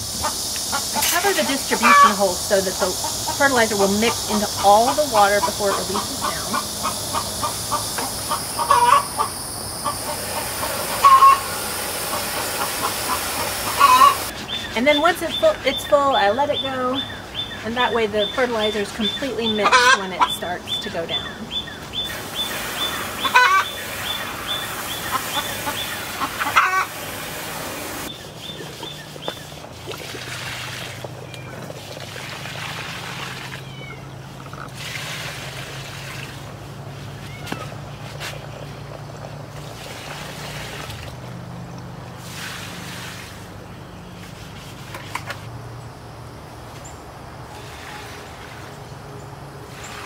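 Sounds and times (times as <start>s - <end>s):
water pouring and splashing: 0.0s - 14.8s, 22.0s - 43.6s, 47.5s - 48.9s, 49.7s - 50.0s
bird calls: 0.0s - 29.7s.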